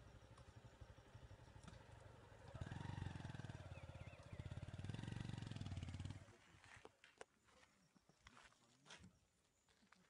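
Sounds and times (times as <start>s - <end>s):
vehicle engine running: 0.0s - 6.5s.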